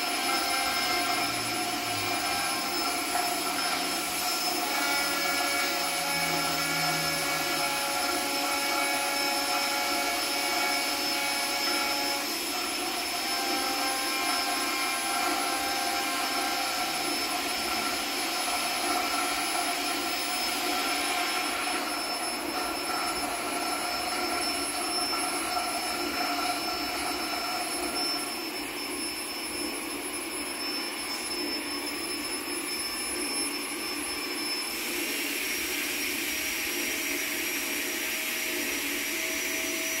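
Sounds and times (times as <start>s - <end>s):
sustained drone tones: 0.3s - 8.8s.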